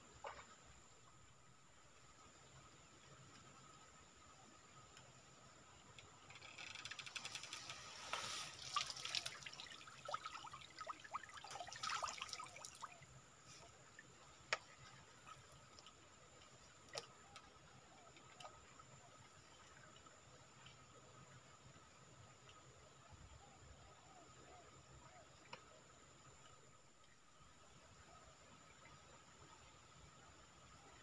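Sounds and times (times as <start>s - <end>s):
water splashing and dripping: 7.2s - 13.0s.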